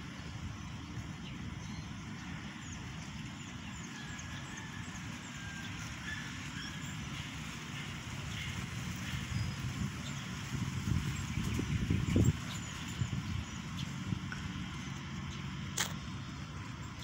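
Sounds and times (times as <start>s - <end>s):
wind rumbling on microphone: 6.8s - 15.8s.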